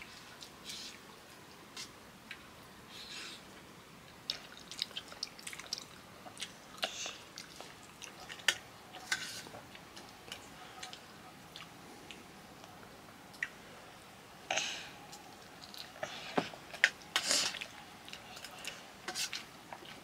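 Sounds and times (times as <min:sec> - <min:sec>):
chewing with wet mouth noises: 0:04.1 - 0:12.3.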